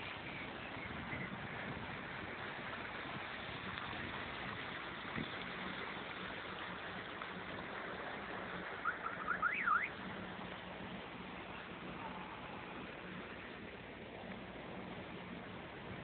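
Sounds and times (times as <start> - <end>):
faint low engine hum: 0.0 - 16.0
wind and water rushing: 0.0 - 16.0
whistle-like sweep: 8.8 - 9.9.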